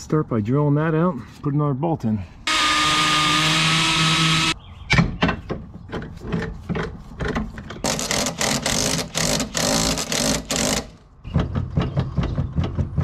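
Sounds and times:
cordless power tool bursts: 2.5s - 4.6s.

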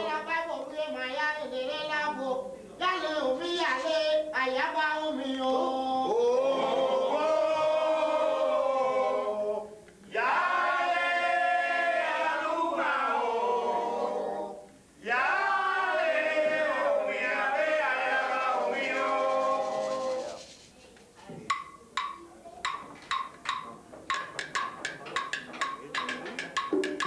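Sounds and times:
people singing together: 5.3s - 20.6s.

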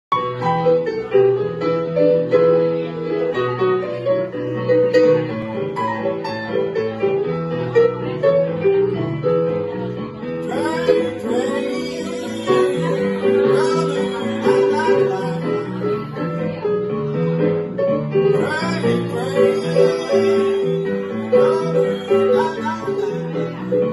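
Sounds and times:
blues piano accompaniment: 0.1s - 23.9s
man singing: 10.4s - 16.2s, 18.3s - 23.6s.

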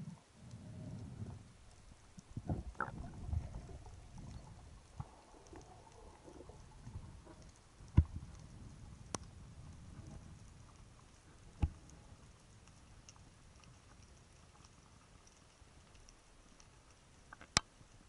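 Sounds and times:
muffled underwater rushing: 0.0s - 12.6s
low underwater wash: 0.0s - 18.0s.

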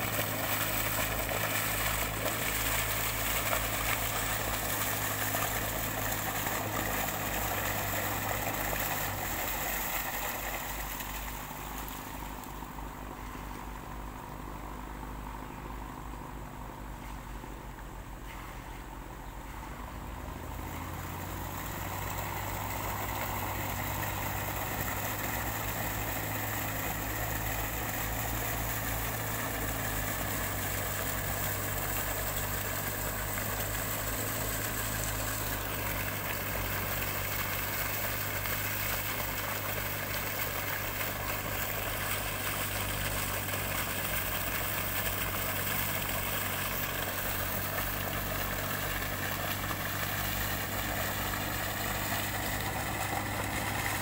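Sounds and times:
sand slurry pouring from pipe: 0.0s - 12.8s, 19.9s - 54.0s
diesel engine running: 0.0s - 54.0s.

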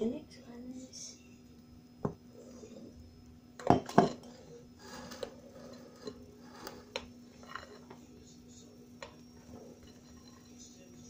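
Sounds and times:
glass bowls and spatula clinking: 3.6s - 4.4s, 9.0s - 10.8s.

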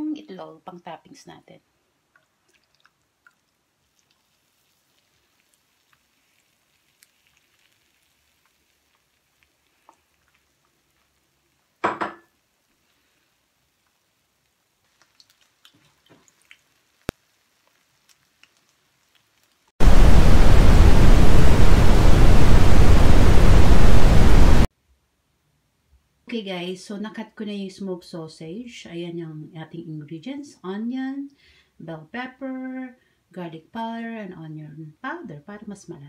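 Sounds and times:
tv static hiss: 18.6s - 24.7s.

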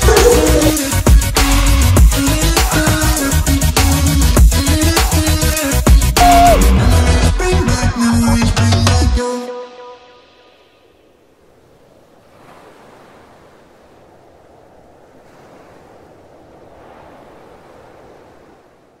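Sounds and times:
ocean surf washing ashore: 10.2s - 19.0s.

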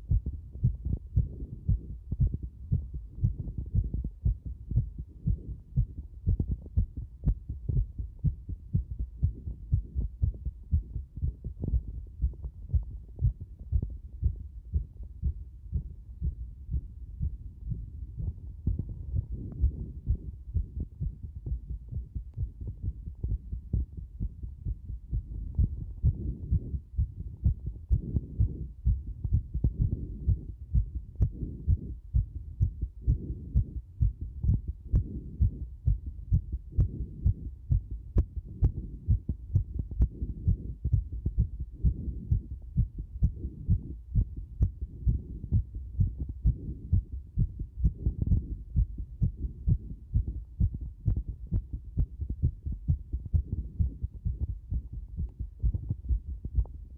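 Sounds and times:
rapid heartbeat: 0.0s - 56.9s.

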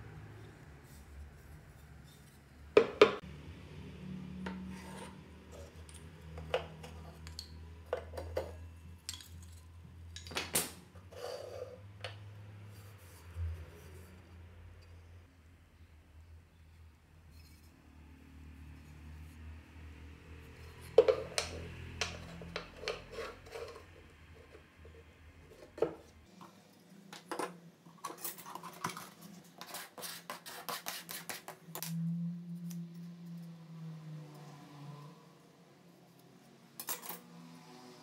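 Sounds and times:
knocks and taps on workbench: 2.8s - 3.2s.

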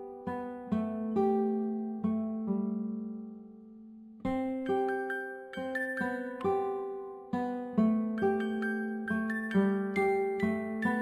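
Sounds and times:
instrumental music ringing notes: 4.7s - 7.1s, 8.1s - 11.0s.

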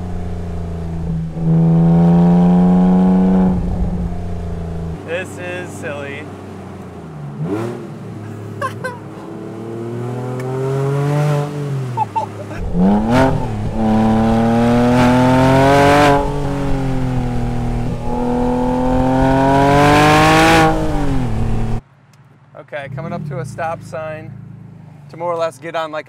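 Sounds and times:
car engine revving loudly: 0.0s - 5.0s, 7.3s - 8.2s, 9.3s - 12.0s, 12.6s - 21.8s.

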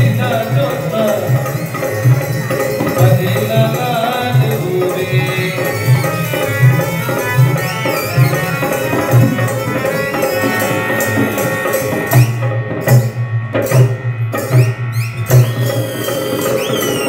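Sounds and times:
hand drum rhythm: 0.0s - 17.0s
harmonium tone: 0.0s - 17.0s
high squeaky glides: 5.5s - 12.5s.

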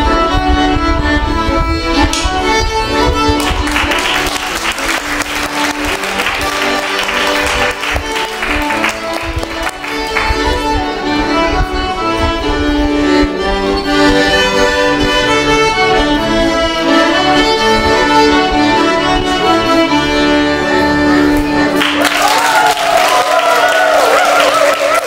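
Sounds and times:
accordion: 0.0s - 22.0s
violin: 0.0s - 22.0s.

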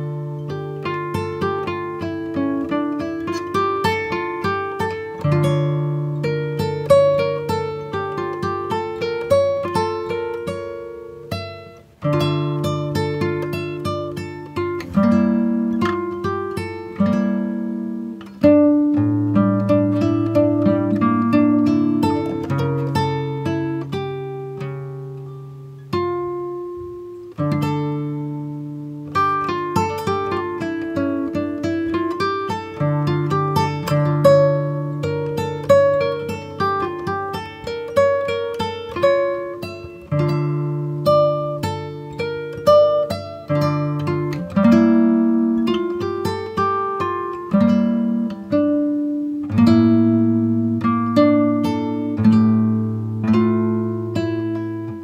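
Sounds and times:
acoustic guitar music: 0.0s - 55.0s.

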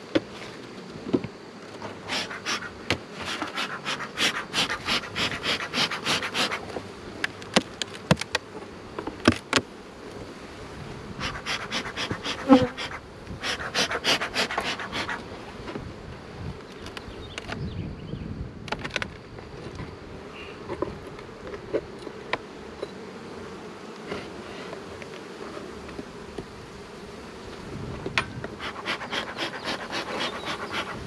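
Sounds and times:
honeybees buzzing: 0.2s - 17.4s, 19.2s - 31.0s
bellows smoker puffing: 1.9s - 6.7s, 11.2s - 15.3s, 28.5s - 31.0s.

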